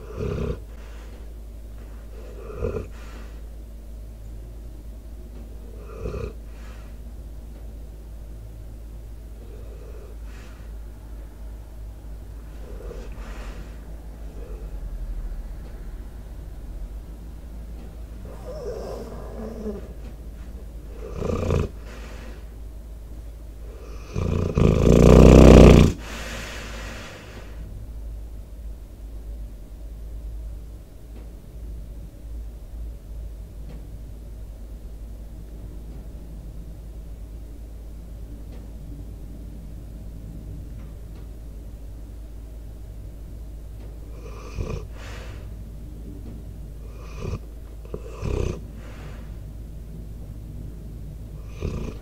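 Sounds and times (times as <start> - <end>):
dog snoring: 0.0 - 3.5, 5.5 - 7.0, 9.3 - 10.8, 12.4 - 15.5, 18.1 - 22.4, 23.6 - 27.6, 44.0 - 45.5, 46.8 - 49.4, 51.2 - 52.0
steady low hum: 0.0 - 52.0.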